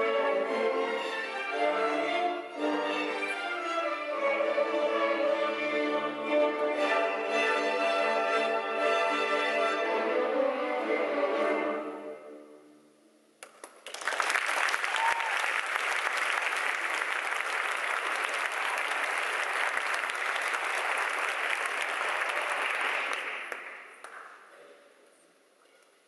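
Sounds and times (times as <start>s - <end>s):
audience applauding: 13.4s - 24.4s.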